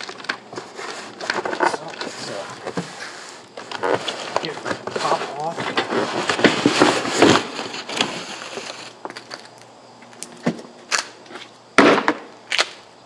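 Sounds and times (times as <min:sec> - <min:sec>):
cardboard flaps scraping and rustling: 0:00.0 - 0:09.2.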